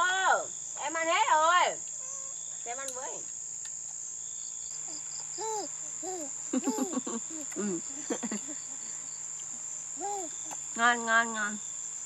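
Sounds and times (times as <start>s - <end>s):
insects buzzing: 0.0s - 12.0s
toddler babbling: 4.9s - 8.1s, 10.0s - 10.6s.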